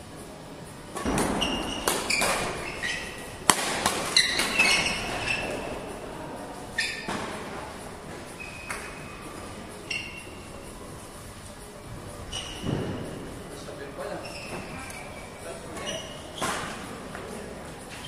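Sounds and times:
racket hitting shuttlecock: 1.0s - 5.4s.

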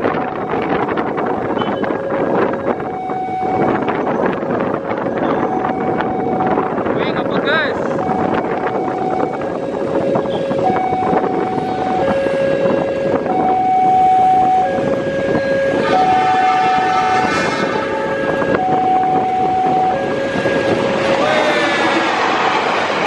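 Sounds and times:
two-tone level crossing alarm: 5.1s - 6.5s, 8.0s - 20.8s
train horn: 15.8s - 18.1s
passenger train approaching: 15.8s - 23.0s.

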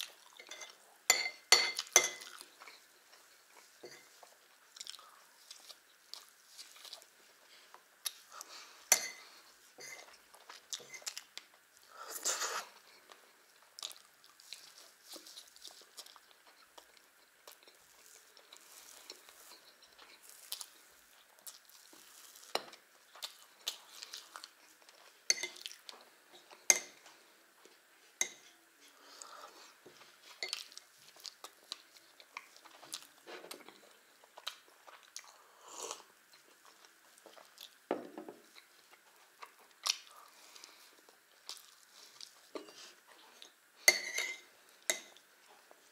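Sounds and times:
person chewing wetly: 1.8s - 7.1s, 10.1s - 27.0s, 30.0s - 44.0s.

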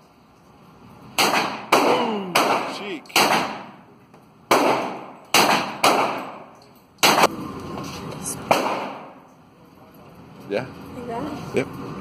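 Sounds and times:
submachine gun shots echoing: 1.2s - 3.8s, 4.5s - 7.3s, 8.5s - 9.2s.

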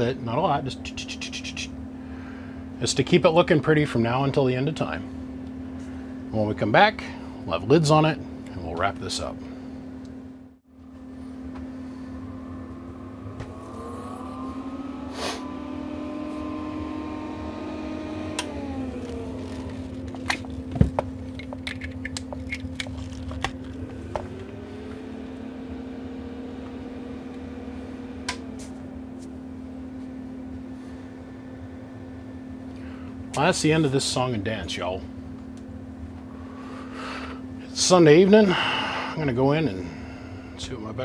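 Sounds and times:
steady hum: 0.0s - 41.0s
small electric motor spinning: 13.1s - 25.4s.

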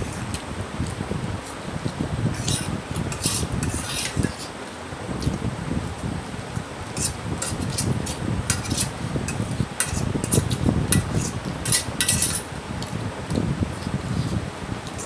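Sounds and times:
fork clinking and scraping on plate: 2.4s - 4.5s, 7.0s - 12.5s.

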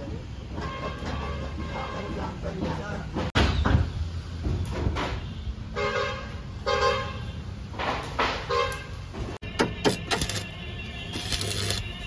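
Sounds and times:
vehicle horn honking: 8.5s - 12.0s.

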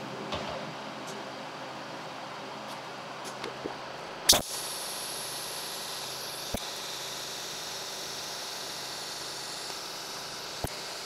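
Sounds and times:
welding torch arc hissing: 4.2s - 11.0s.

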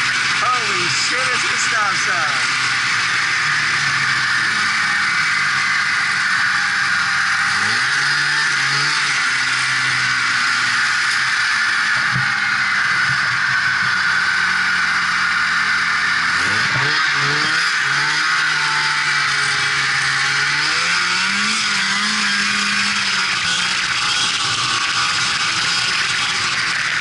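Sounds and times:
snowmobile engine running: 0.0s - 27.0s.

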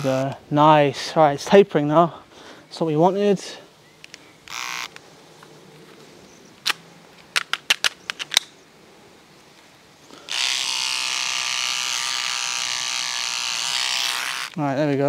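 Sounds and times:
beard trimmer buzzing: 0.0s - 0.3s, 4.5s - 4.9s, 10.2s - 14.6s.

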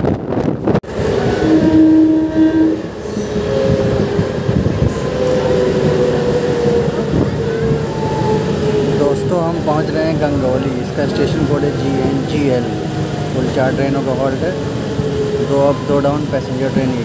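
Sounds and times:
wind buffeting microphone: 0.0s - 1.8s, 2.8s - 13.4s
electric train rumbling on track: 0.0s - 17.0s
held train tones: 0.0s - 17.0s.

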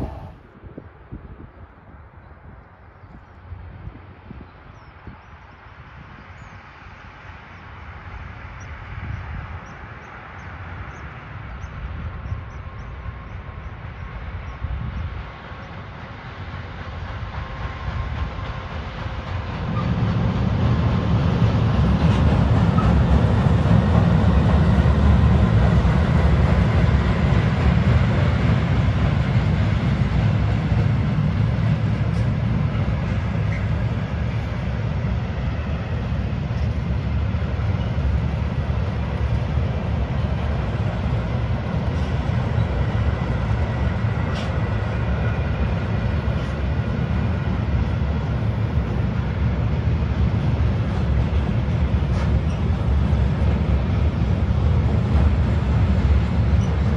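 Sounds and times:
diesel locomotive rumble: 0.0s - 56.9s
freight train wagons rolling: 15.4s - 56.9s.

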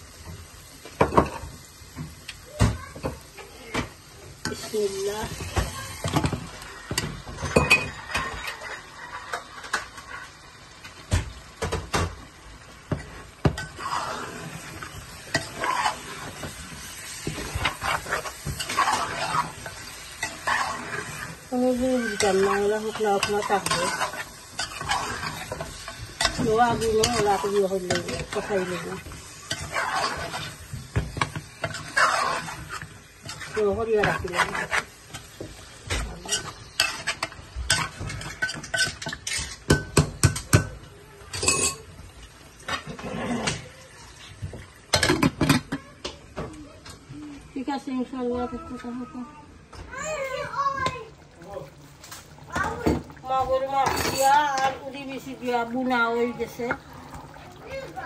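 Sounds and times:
food sizzling in a pan: 0.0s - 58.0s
metal spoon scraping a pot: 13.6s - 35.3s, 36.0s - 40.4s.

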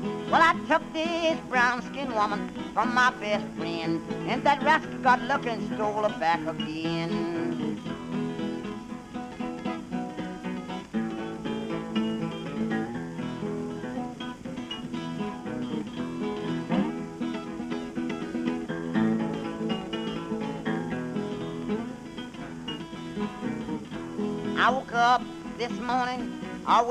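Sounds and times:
acoustic blues guitar picking: 0.0s - 26.9s.

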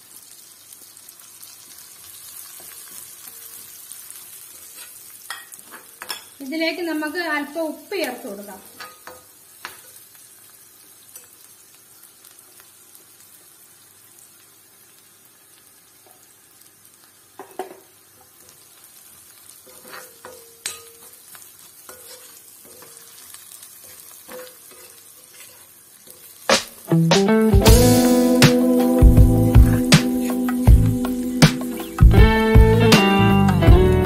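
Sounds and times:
frying in oil sizzle: 0.0s - 34.0s
spatula scraping and knocking pan: 19.6s - 21.2s, 21.8s - 26.9s.

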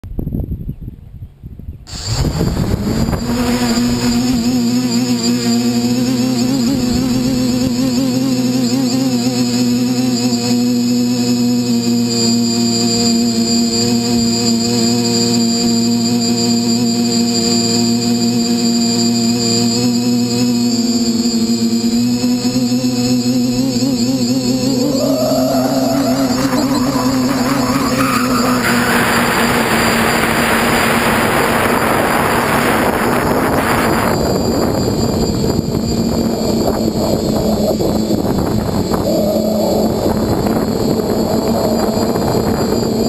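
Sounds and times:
wind rush on microphone: 0.0s - 5.3s, 24.5s - 43.0s
drone motors humming: 1.9s - 43.0s.

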